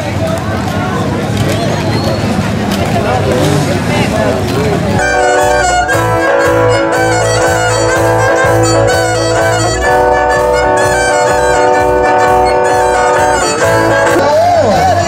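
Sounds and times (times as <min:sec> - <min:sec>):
pulsing bass beat: 0:02.9 - 0:15.0
live band music: 0:05.0 - 0:15.0
violin melody: 0:05.0 - 0:15.0.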